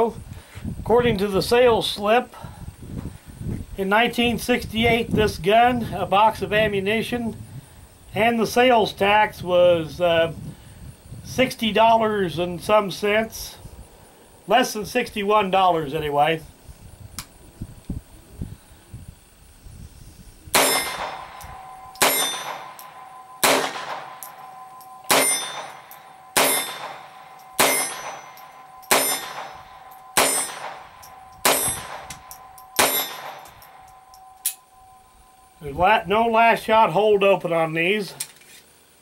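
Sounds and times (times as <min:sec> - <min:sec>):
pistol shots: 0:20.5 - 0:33.8
steel targets ringing: 0:20.6 - 0:35.6.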